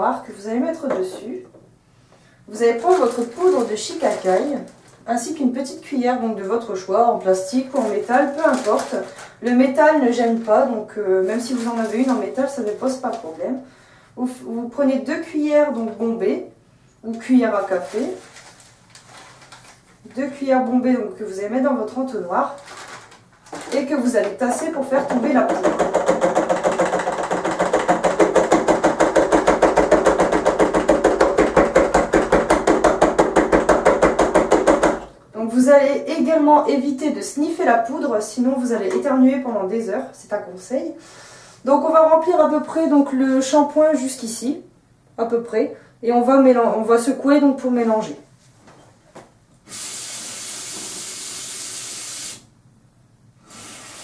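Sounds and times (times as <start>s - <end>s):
tap water filling a bottle: 50.3s - 52.3s.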